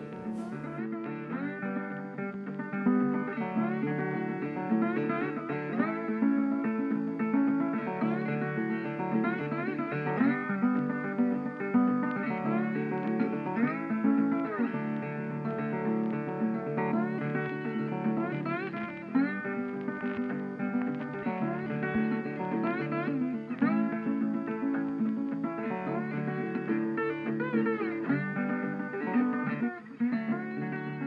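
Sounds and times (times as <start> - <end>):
plucked guitar music: 0.0 - 31.0.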